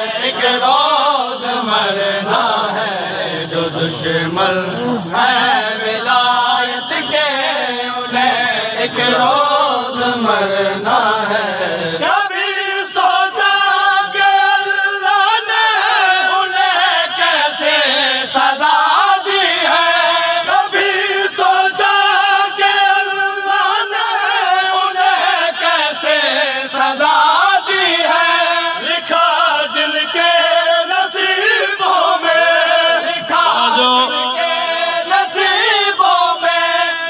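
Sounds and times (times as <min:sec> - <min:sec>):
group of men chanting: 0:00.0 - 0:37.0
man chanting through loudspeakers: 0:00.0 - 0:37.0.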